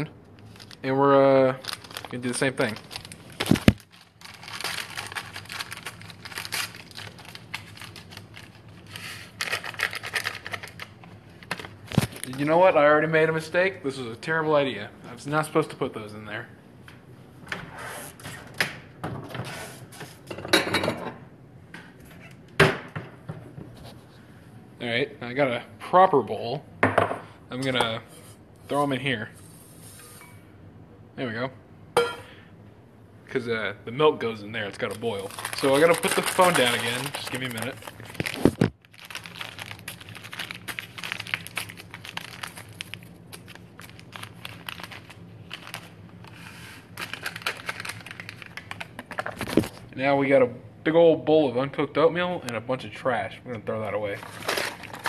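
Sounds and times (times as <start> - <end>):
low steady hum: 0.0 - 55.0
paper packets crinkling: 0.4 - 12.7, 34.6 - 49.8, 54.1 - 55.0.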